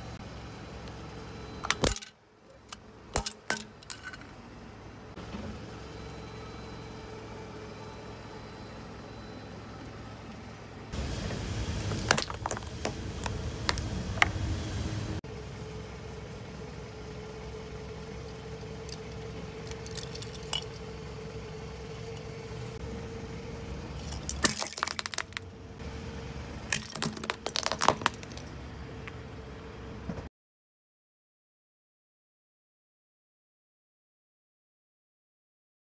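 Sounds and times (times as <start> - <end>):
car tyre rumbling: 10.9 - 15.2, 18.2 - 29.3
steady hum: 10.9 - 24.7.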